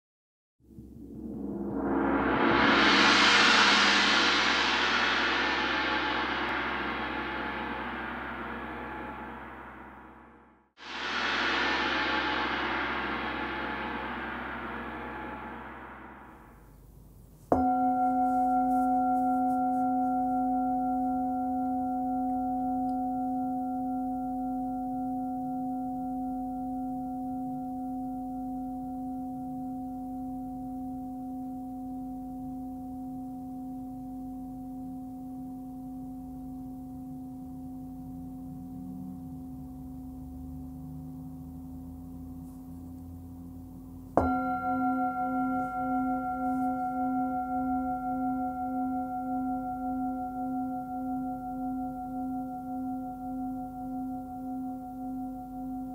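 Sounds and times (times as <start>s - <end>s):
mallet striking bowl: 0.7s - 16.6s, 17.5s - 41.5s, 42.1s - 55.9s
singing bowl ringing: 17.5s - 41.5s, 42.1s - 55.9s.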